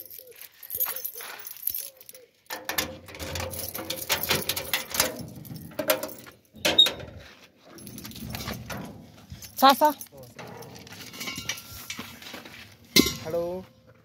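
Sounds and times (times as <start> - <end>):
keys and lock rattling: 0.0 - 11.8
metal gate clank: 2.5 - 7.2, 10.3 - 11.8, 12.9 - 13.4.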